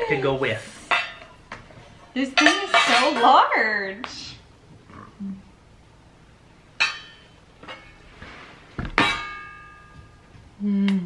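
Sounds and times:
metal pots clanking: 0:00.9 - 0:01.7, 0:02.3 - 0:03.5, 0:06.8 - 0:08.0, 0:08.8 - 0:10.3.

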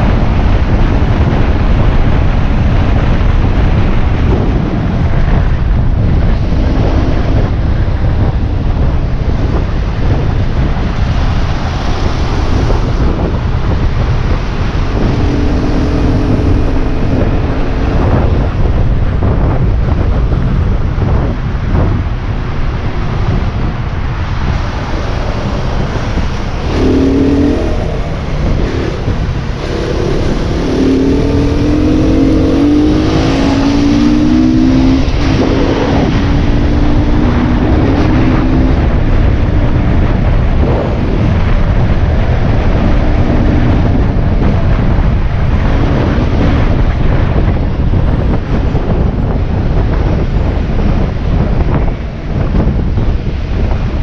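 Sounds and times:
wind noise on microphone: 0:00.0 - 0:54.0
motorbike engine revving: 0:10.8 - 0:19.6, 0:24.4 - 0:49.3.

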